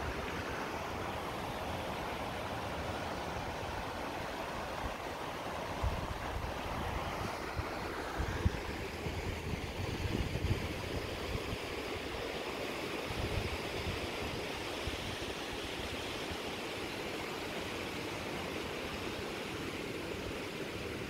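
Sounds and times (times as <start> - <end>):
fast-flowing water rushing: 0.0 - 21.0
wind buffeting microphone: 5.8 - 11.7.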